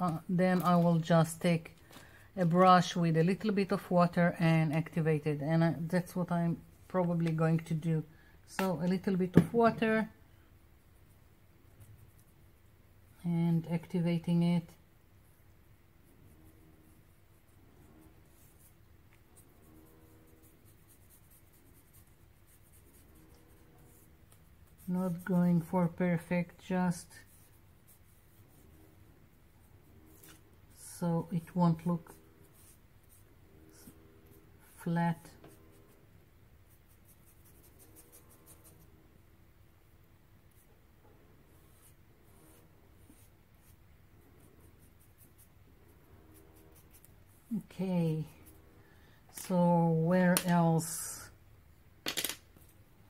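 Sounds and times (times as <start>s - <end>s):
low room hum: 0.0s - 53.0s
paintbrush strokes on paper: 10.8s - 39.2s, 40.4s - 51.4s.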